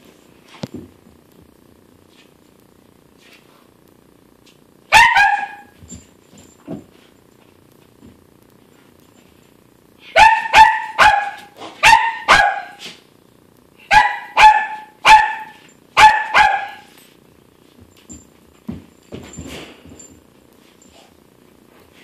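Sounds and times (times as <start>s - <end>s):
small dog barking: 4.9s - 5.8s, 10.1s - 12.8s, 13.8s - 16.9s.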